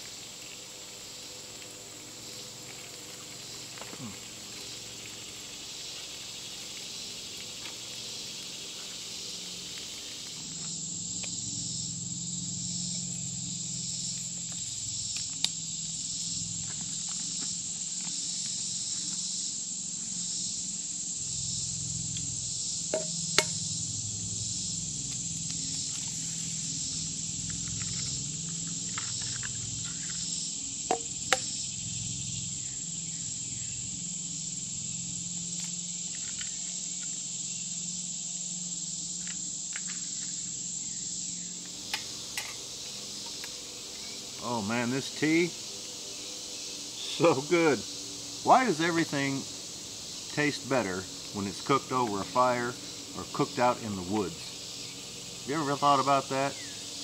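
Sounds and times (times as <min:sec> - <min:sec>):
insect chorus buzzing: 0:00.0 - 0:57.0.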